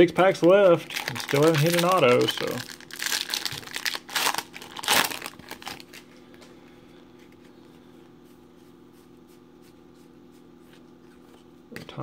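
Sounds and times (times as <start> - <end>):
faint steady hum: 0.0 - 12.0
foil wrapper crinkling: 0.2 - 6.1.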